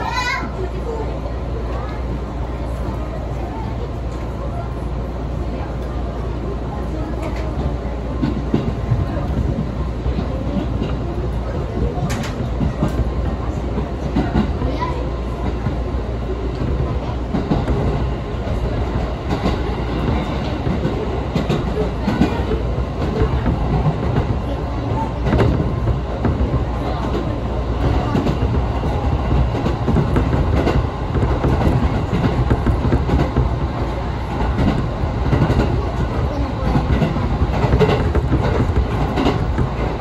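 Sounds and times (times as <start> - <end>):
train wheels rumbling on rail: 0.0 - 40.0.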